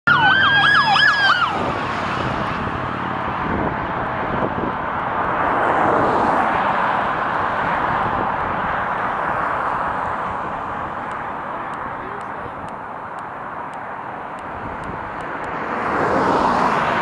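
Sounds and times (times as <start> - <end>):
police siren yelping: 0.0 - 1.7
traffic rushing: 0.1 - 17.0.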